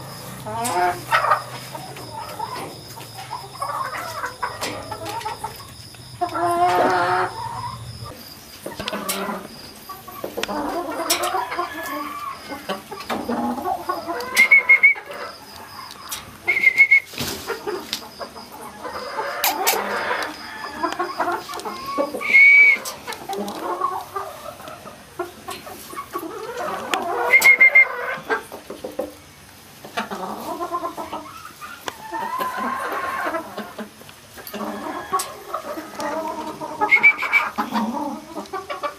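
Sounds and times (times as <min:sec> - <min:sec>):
loud high-pitched hen calls: 0:00.0 - 0:28.7, 0:29.8 - 0:38.9
hens clucking: 0:00.0 - 0:38.9.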